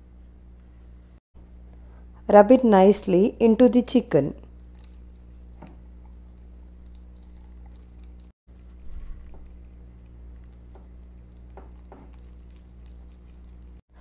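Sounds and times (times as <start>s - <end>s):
electrical hum: 0.0s - 14.0s
wet squishing of hands in meat: 4.5s - 13.8s.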